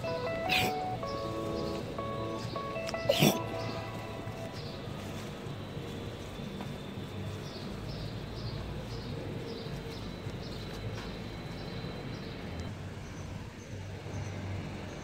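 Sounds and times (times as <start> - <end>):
small bird chirping: 0.0 - 6.4
low outdoor rumble: 0.0 - 9.0.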